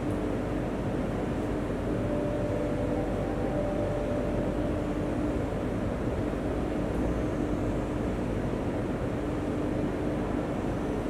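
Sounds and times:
train air conditioning hum: 0.0 - 11.0
faint high steady tone: 1.8 - 7.6.

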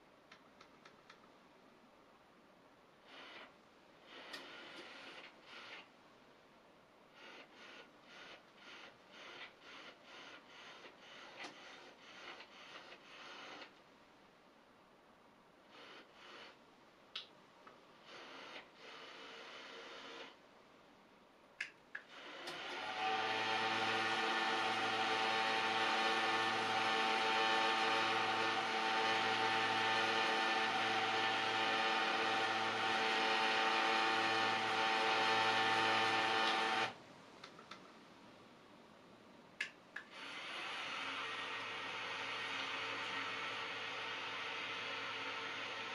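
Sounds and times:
motorised blinds rasping: 22.2 - 37.0, 40.2 - 45.9.

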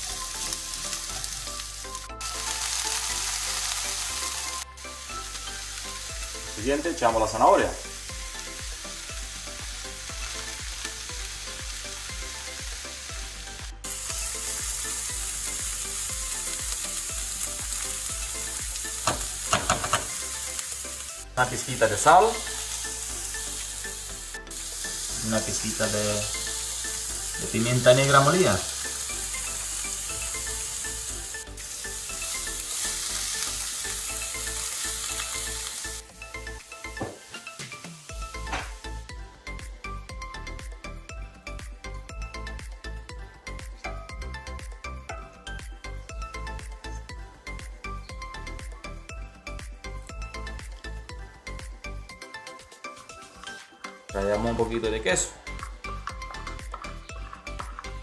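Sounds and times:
vegetables sizzling in oil: 0.0 - 39.2
light background music: 0.0 - 58.0.

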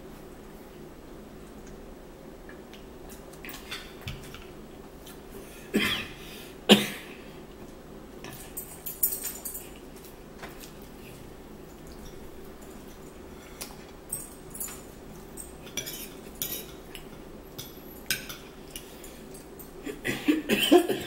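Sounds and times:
woman coughing: 5.8 - 7.1, 19.8 - 21.0
cutlery and plates clinking: 8.3 - 9.8, 14.1 - 19.8.

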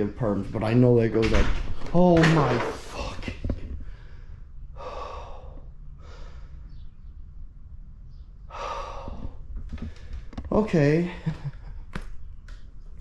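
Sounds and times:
man breathing heavily: 3.8 - 6.9, 8.4 - 10.4.

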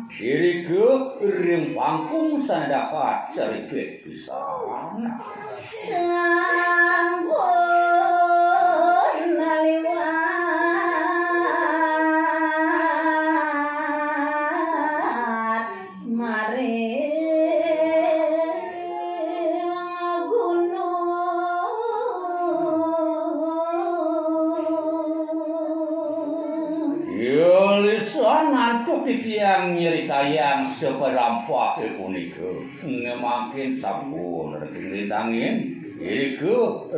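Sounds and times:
woman singing unaccompanied: 5.1 - 27.0.

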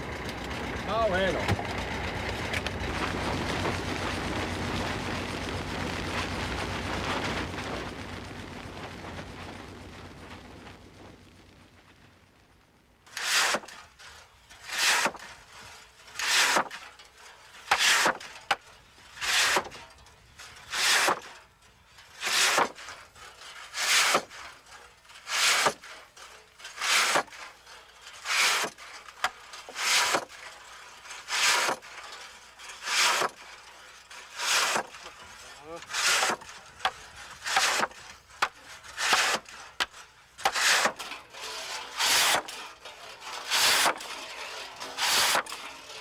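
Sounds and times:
pit saw rasping strokes: 13.1 - 16.8, 17.6 - 18.2, 19.2 - 19.8, 20.7 - 21.3, 22.2 - 22.9, 23.6 - 24.5, 25.2 - 26.0, 26.7 - 27.4, 28.2 - 28.8, 29.7 - 30.3, 31.1 - 31.9, 32.8 - 33.4, 34.1 - 45.6.

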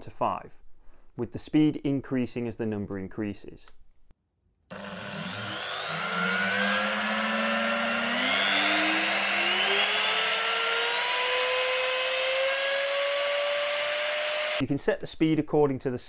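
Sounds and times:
wood router motor whine: 4.7 - 14.6.

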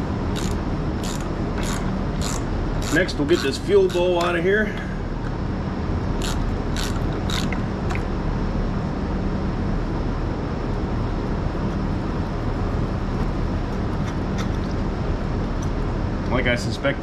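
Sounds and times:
steady mechanical hum: 0.0 - 17.0
ratchet wrench clicking: 0.3 - 4.4, 6.2 - 7.6.

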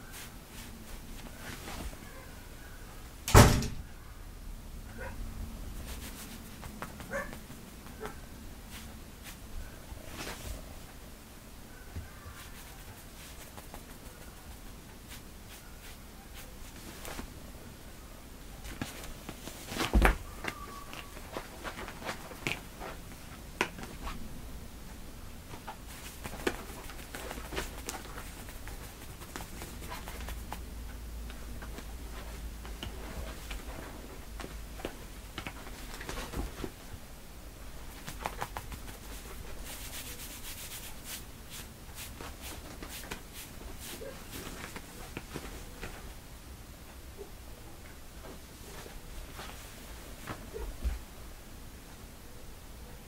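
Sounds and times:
thump: 3.3 - 3.8
kitten claws scratching denim: 5.8 - 9.4, 12.3 - 17.3, 25.5 - 30.7, 37.8 - 45.8.

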